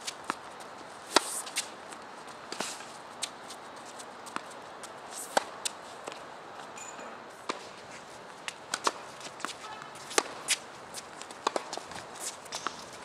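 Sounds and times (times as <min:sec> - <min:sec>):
racket hitting tennis ball: 0:00.0 - 0:03.6, 0:04.2 - 0:12.9
footsteps and shoe scuffs: 0:00.0 - 0:06.8, 0:07.4 - 0:13.0
ball bouncing: 0:08.5 - 0:10.6, 0:11.3 - 0:12.8.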